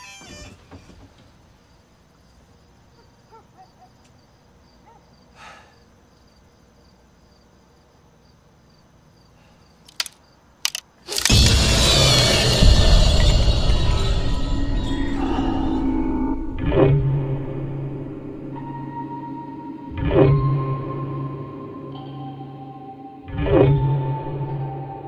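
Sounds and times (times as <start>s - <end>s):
crickets chirping: 0.0s - 11.4s
sharp clicks: 9.8s - 11.6s.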